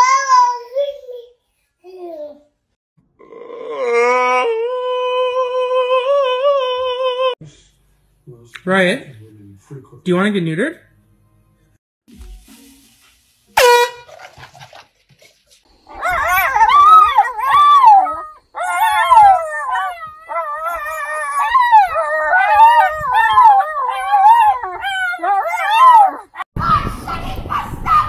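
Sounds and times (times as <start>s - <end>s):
air horn blast: 13.6s - 14.2s
dog howling: 15.9s - 26.4s.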